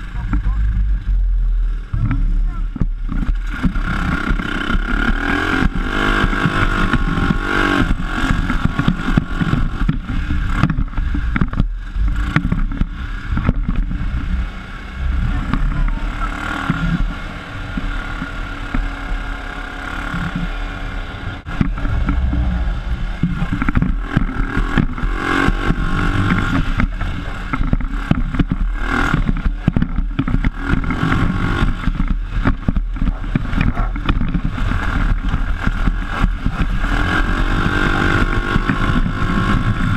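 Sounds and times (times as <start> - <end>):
buggy engine revving: 0.0 - 39.9.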